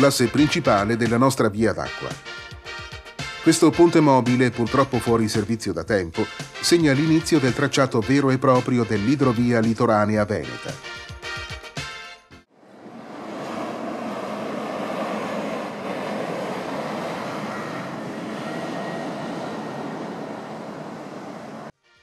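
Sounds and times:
bus driving: 0:12.4 - 0:21.8
road traffic noise: 0:12.5 - 0:21.7.

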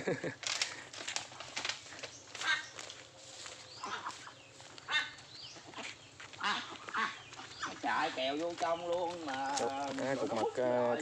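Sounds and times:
chickens clucking: 0:01.3 - 0:11.0.

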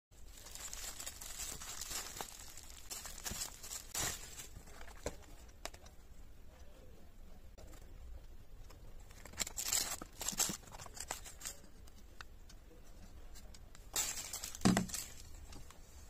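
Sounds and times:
packaging rustling and crinkling: 0:00.2 - 0:05.8, 0:09.0 - 0:11.9, 0:13.8 - 0:15.8.

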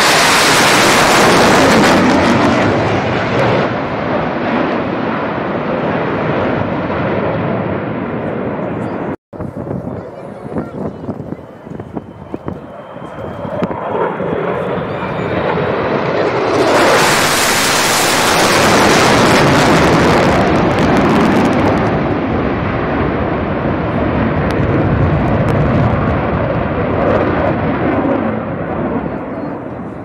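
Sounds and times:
fighter jet flying past: 0:00.0 - 0:30.0.

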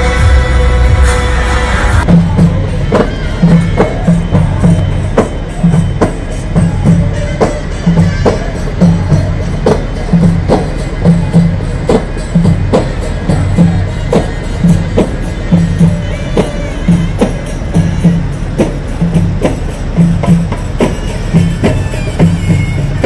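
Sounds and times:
steady drumbeat: 0:00.0 - 0:23.0
hand percussion: 0:02.0 - 0:23.0
tambourine jingles: 0:02.3 - 0:23.0.

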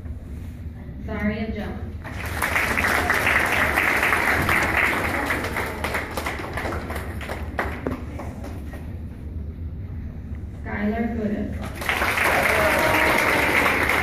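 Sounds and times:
children clapping: 0:02.0 - 0:08.6, 0:11.6 - 0:14.0.

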